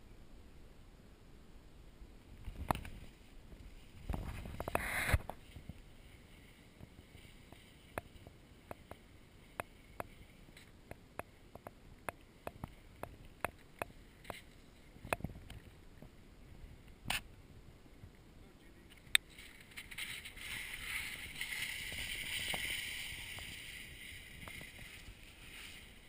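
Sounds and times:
skis scraping on snow: 3.0s - 8.9s, 19.5s - 26.0s
skis and boots rushing in snow: 19.4s - 26.0s.

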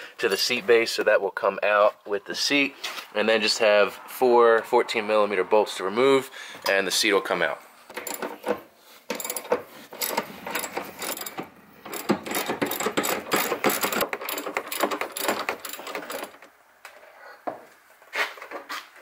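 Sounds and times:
ratchet wrench clicking: 8.0s - 8.3s, 9.1s - 16.4s.

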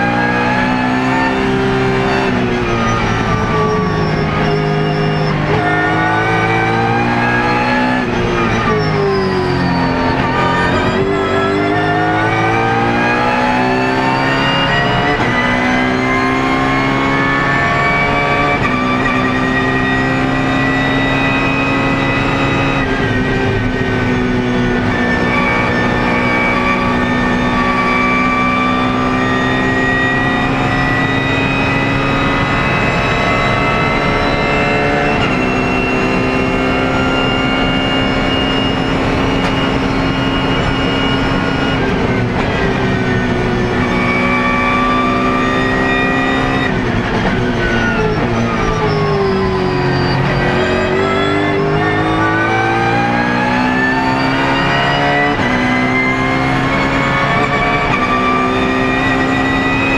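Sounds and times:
racing car engine at full throttle: 0.0s - 59.9s
gear changes: 0.2s - 59.9s.

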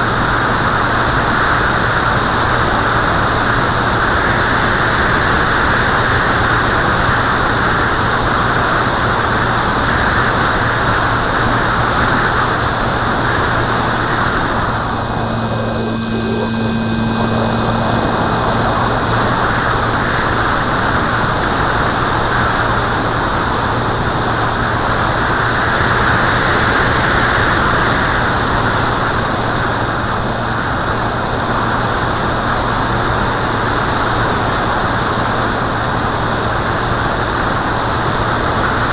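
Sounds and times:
aircraft motor drone: 0.0s - 38.2s
airflow rushing over camera: 13.4s - 20.4s.

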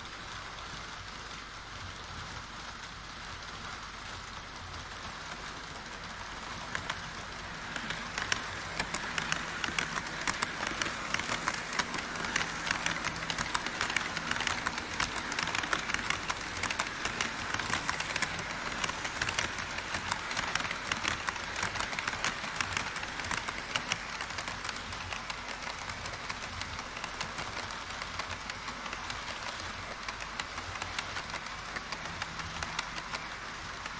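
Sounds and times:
model train wheels rattling: 3.4s - 33.9s
clicking over rail joints: 5.0s - 33.9s.

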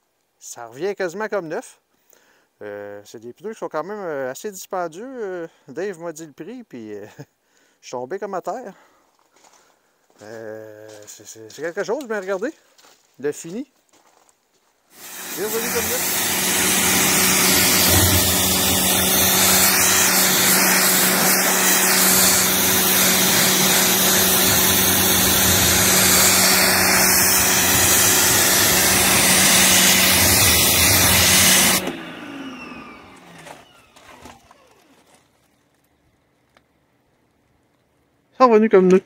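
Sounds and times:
water spray hissing on tyre: 15.0s - 31.8s
pressure washer motor humming: 15.0s - 34.9s.

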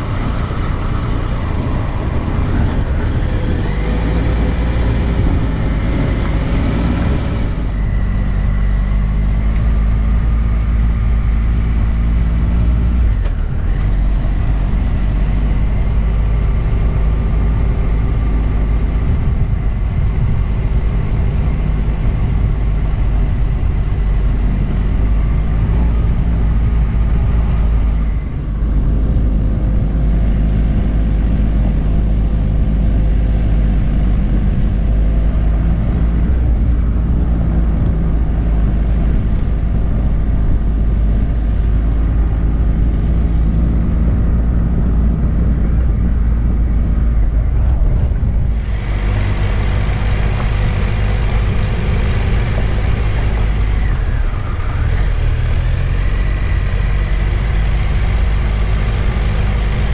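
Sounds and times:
heavy low rumble: 0.0s - 59.9s
motorcycle engine running: 13.0s - 59.9s.

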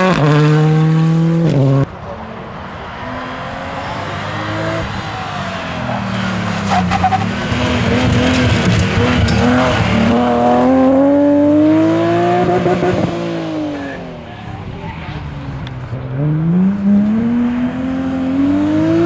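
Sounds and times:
rally car engine accelerating: 0.0s - 2.2s, 2.8s - 19.0s
exhaust cracks: 6.2s - 10.4s.

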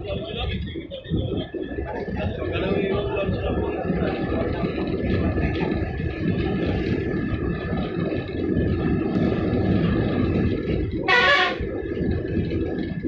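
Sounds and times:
bus engine and road rumble: 0.0s - 13.0s
loud horn blast: 11.1s - 11.6s.

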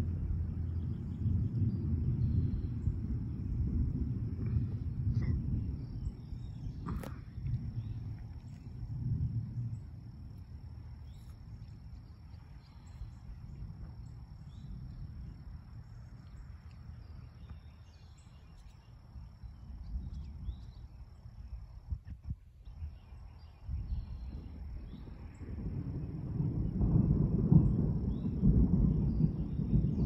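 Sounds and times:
distant thunder rumbling: 0.0s - 22.0s, 22.8s - 30.0s
insect drone: 0.0s - 30.0s
faint bird chirps: 11.0s - 15.0s, 15.8s - 21.6s, 22.3s - 25.5s.

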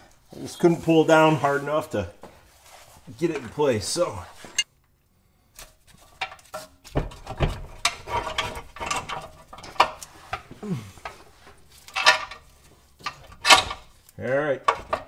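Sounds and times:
metal clanking and scraping: 6.0s - 14.0s, 14.6s - 15.0s.

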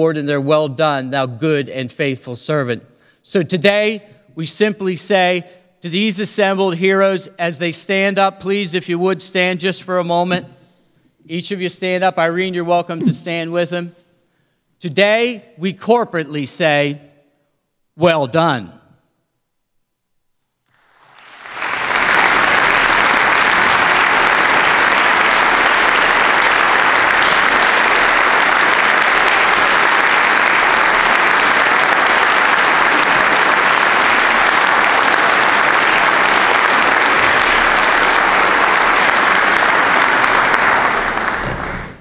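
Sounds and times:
large crowd applauding: 20.7s - 42.0s.

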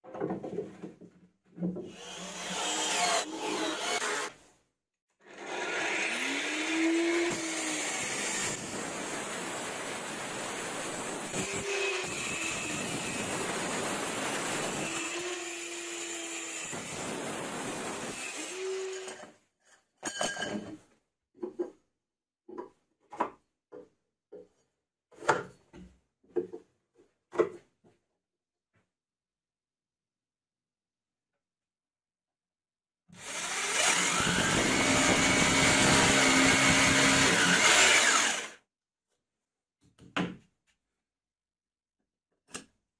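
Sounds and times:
metal knocking and scraping wood: 0.0s - 1.9s.

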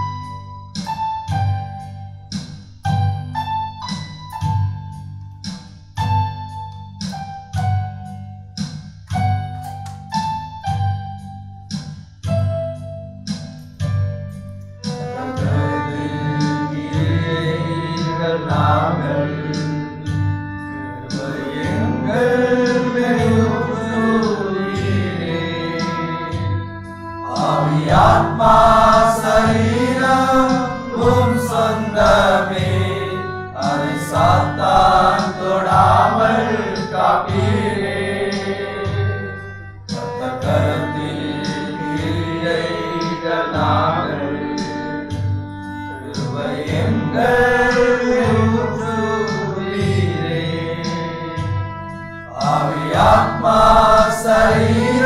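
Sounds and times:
steady beat: 0.0s - 55.0s
person singing: 14.8s - 45.2s, 45.8s - 55.0s.

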